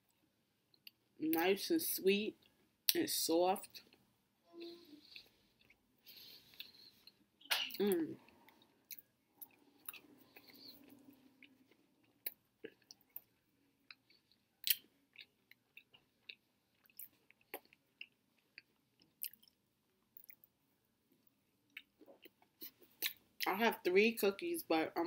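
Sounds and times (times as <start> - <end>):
chewing cookie: 5.0 - 23.5
mouth clicks and smacks: 13.9 - 19.6.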